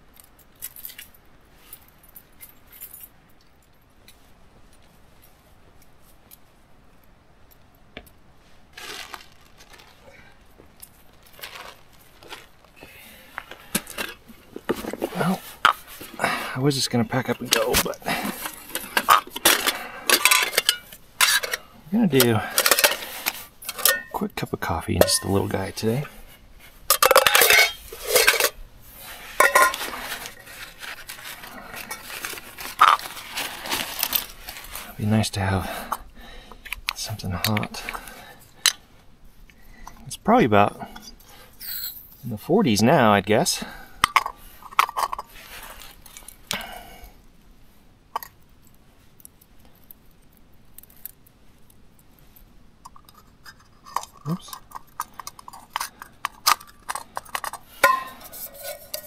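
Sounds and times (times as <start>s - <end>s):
clothing and bag rustling: 8.4s - 21.6s, 25.0s - 35.0s, 44.5s - 46.4s
nylon sack rustling: 8.6s - 13.7s, 29.0s - 35.0s
footsteps on grass: 8.7s - 12.8s
metal cookware clattering: 18.4s - 21.6s, 23.7s - 24.2s, 25.0s - 25.4s, 26.9s - 28.6s, 29.4s - 29.9s, 56.9s - 59.0s.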